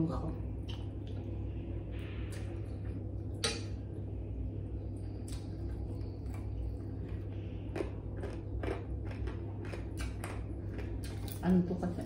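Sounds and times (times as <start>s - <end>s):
steady low hum: 0.0s - 12.0s
chewing: 5.1s - 11.6s.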